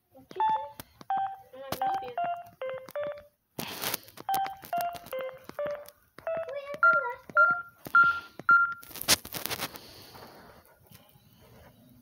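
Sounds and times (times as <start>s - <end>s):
keypad beeps: 0.3s - 3.3s, 4.2s - 8.9s.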